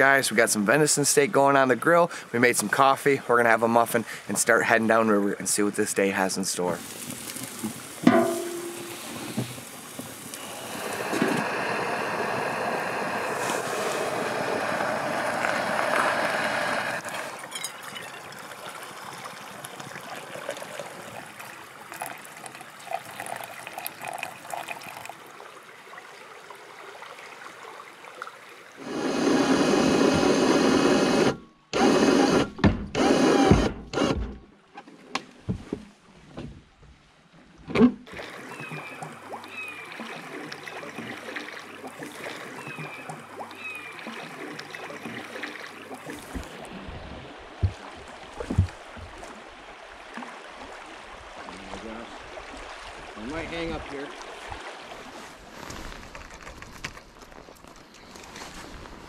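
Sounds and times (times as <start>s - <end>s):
rushing river noise: 6.8s - 25.2s
coffee trickling into metal mug: 17.1s - 25.2s.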